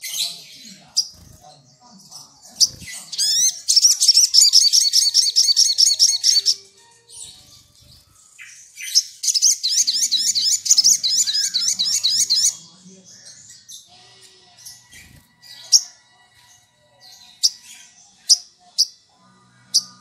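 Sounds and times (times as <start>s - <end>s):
bird singing rapid high notes: 2.6s - 12.7s.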